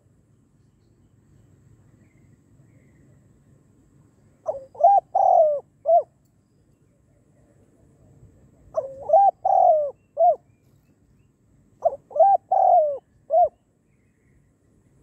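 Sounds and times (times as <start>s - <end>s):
dove cooing: 4.4s - 6.2s, 8.6s - 10.5s, 11.8s - 13.6s.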